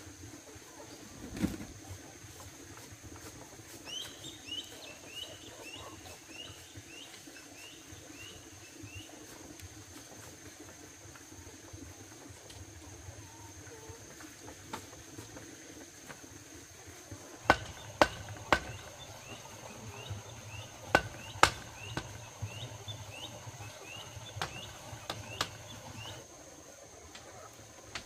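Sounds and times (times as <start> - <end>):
high insect drone: 15.2 - 27.1
sharp knocks: 17.4 - 22.8, 24.3 - 26.1.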